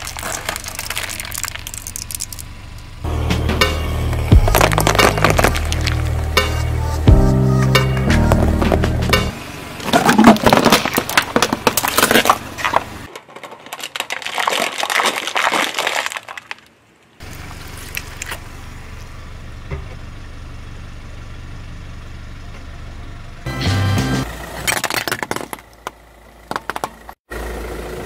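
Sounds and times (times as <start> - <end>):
foil trays crinkling: 0.0 - 2.4, 4.4 - 6.1, 9.9 - 16.7
tyre crunching objects: 0.0 - 2.5, 4.1 - 6.7, 9.8 - 18.4
low hum: 0.1 - 9.6.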